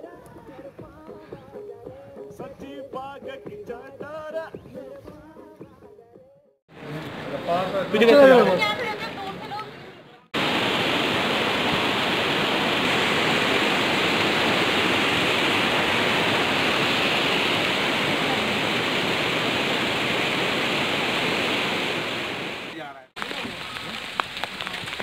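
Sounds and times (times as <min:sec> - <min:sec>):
fast river rushing: 0:06.7 - 0:09.5, 0:10.4 - 0:25.0.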